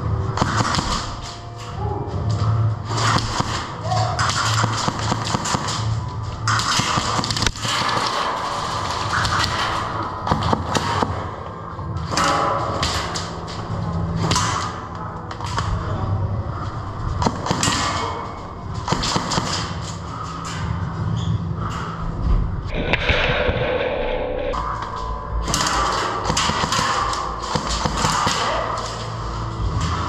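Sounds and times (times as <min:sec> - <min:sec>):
steady low hum: 0:00.0 - 0:30.0
airsoft guns firing: 0:03.0 - 0:05.9, 0:25.5 - 0:29.0.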